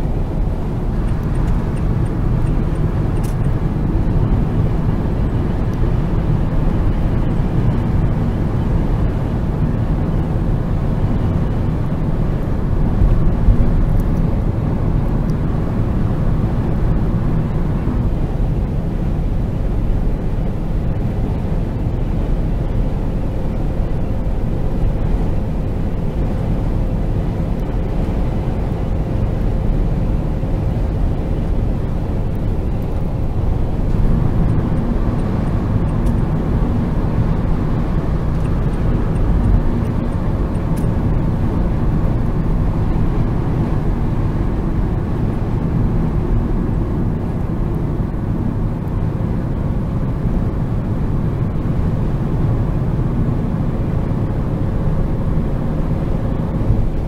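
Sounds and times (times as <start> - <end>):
road and tyre noise: 0.0 - 57.0
van engine running: 0.0 - 57.0.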